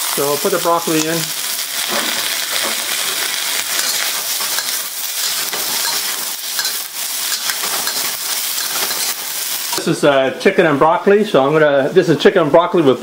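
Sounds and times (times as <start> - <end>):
vegetables sizzling in hot oil: 0.0 - 10.2
ladle scraping and clinking wok: 1.8 - 10.0.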